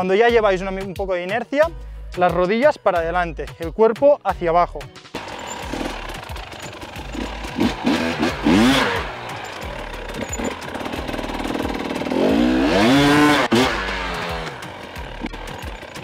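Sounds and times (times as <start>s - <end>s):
motorcycle engine revving: 5.2s - 16.0s.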